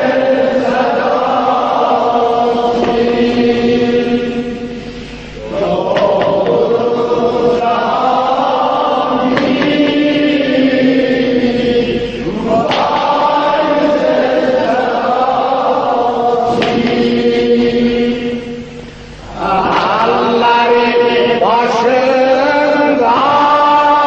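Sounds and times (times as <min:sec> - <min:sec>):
man chanting: 0:19.4 - 0:24.0.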